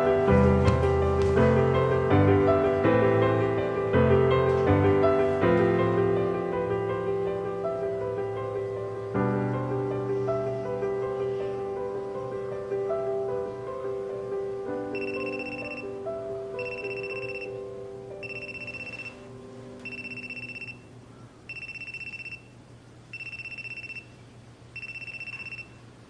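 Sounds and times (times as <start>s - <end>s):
soft background music: 0.0s - 22.4s
electronic telephone ringing: 15.0s - 15.9s, 16.6s - 17.6s, 18.2s - 20.9s, 21.5s - 22.5s, 23.1s - 24.2s, 24.8s - 25.8s.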